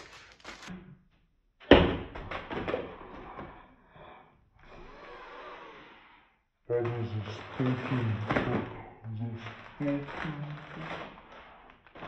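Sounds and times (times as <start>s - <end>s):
rustling and handling noise: 0.0s - 0.7s, 6.8s - 12.0s.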